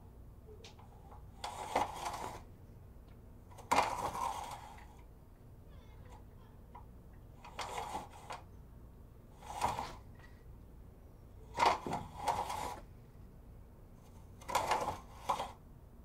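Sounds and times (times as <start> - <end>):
window blind slats rattling: 9.4 - 10.0, 11.6 - 12.8.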